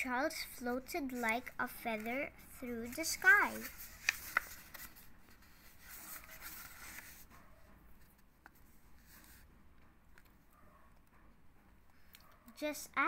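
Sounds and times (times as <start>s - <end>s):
book pages rustling: 0.6s - 7.4s, 8.0s - 9.5s.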